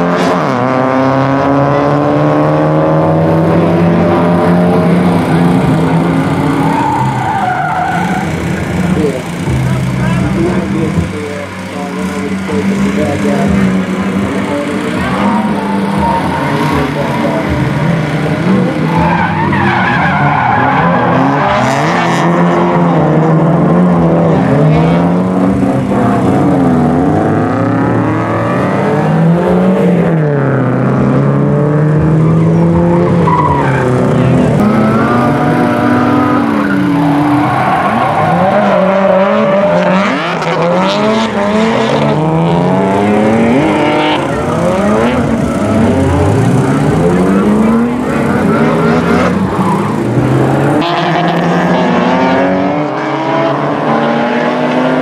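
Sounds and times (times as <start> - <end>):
car engines revving: 0.0 - 55.0
tyres squealing: 32.8 - 40.7.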